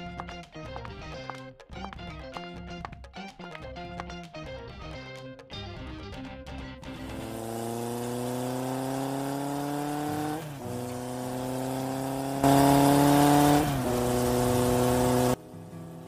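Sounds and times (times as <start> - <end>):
vehicle engine revving: 6.9 - 16.0.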